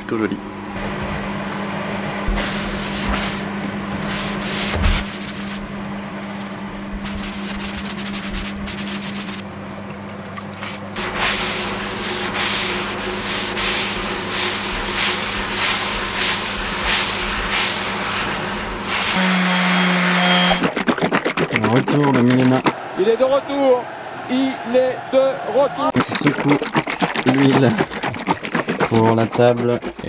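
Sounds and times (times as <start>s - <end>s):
steady low hum: 0.0s - 22.9s
wet sponge rubbing wood: 2.4s - 5.7s, 7.0s - 9.4s, 11.0s - 22.8s, 26.0s - 30.0s.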